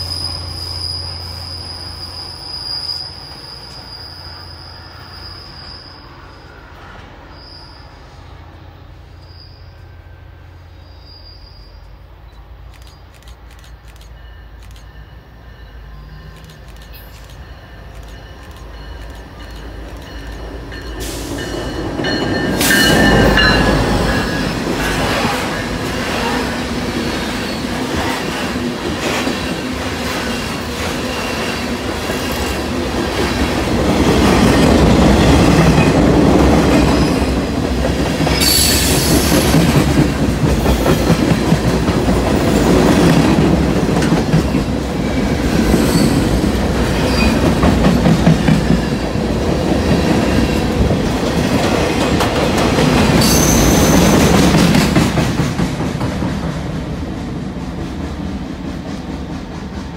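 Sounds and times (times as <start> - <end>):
high wheel squeals: 0.0 - 8.4, 9.1 - 11.9, 45.0 - 47.6, 53.2 - 54.2
train wheels rumbling on rails: 0.0 - 59.9
clickety-clack over rail joints: 27.2 - 59.9.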